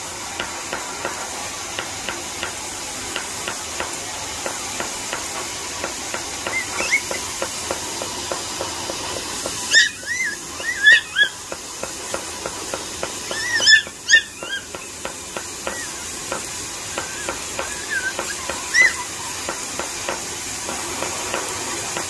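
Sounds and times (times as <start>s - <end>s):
puppy yapping: 6.4s - 7.2s, 9.7s - 11.5s, 13.2s - 15.0s, 16.9s - 19.6s.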